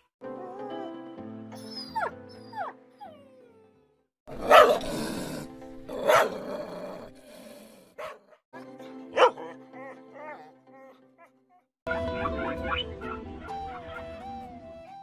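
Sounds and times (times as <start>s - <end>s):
background music: 0.0s - 15.0s
dog yelping: 4.3s - 5.0s, 6.0s - 6.4s
dog barking loudly: 4.3s - 5.3s, 5.9s - 6.6s, 8.0s - 8.3s, 9.2s - 9.5s.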